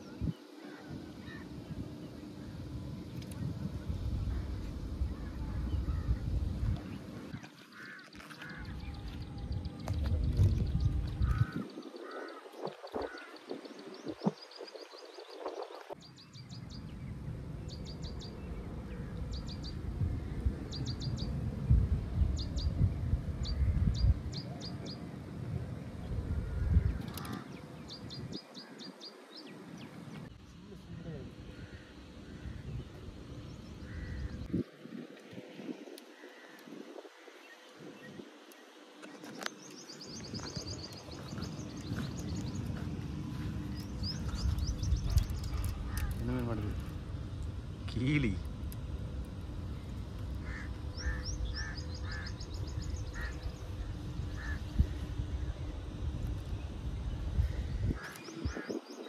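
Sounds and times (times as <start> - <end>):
low uneven rumble: 0.0 - 14.3, 29.5 - 38.3, 39.1 - 58.8
small bird chirping: 38.0 - 47.0.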